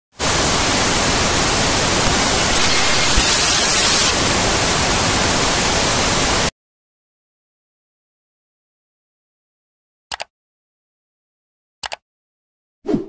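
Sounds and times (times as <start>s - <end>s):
television static hiss: 0.2s - 6.5s.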